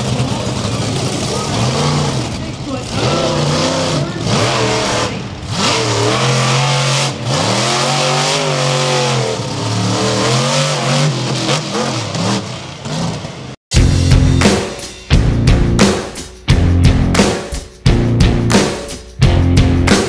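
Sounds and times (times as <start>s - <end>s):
monster truck engine revving: 0.0s - 14.5s
rock music with drums: 13.7s - 20.0s.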